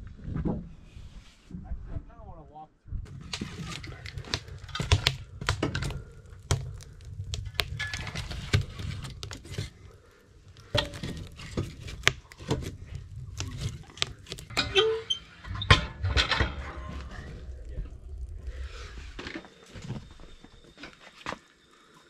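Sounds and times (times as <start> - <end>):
low rumble: 1.6 - 20.9
logs knocking into wood stove: 10.6 - 15.0.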